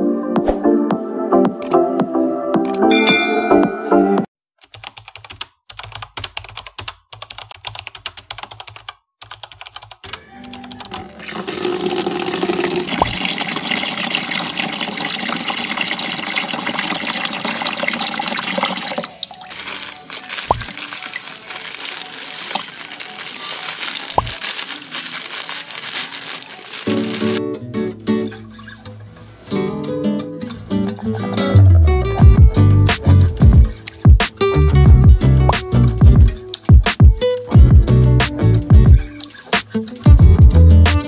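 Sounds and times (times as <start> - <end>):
tap running into basin: 11.2 - 19.5.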